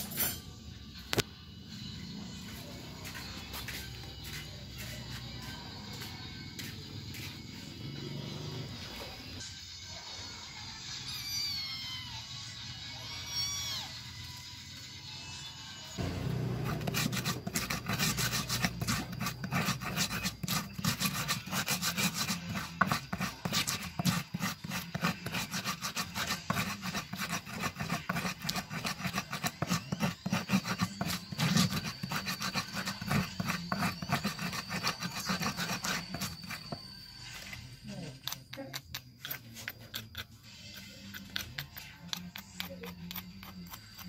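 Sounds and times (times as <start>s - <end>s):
stone pestle grinding in mortar: 16.0s - 37.5s, 38.1s - 44.0s.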